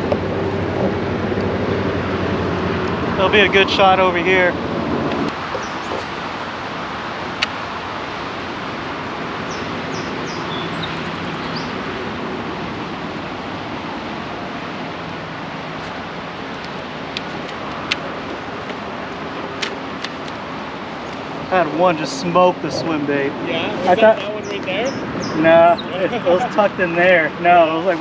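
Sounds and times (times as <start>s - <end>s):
choppy river water: 0.0s - 25.2s.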